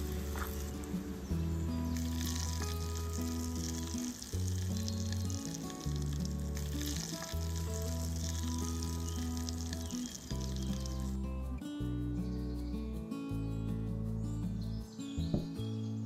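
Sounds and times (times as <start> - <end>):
shrimp sizzling in oil: 0.0 - 11.2
slow low background music: 0.0 - 16.0.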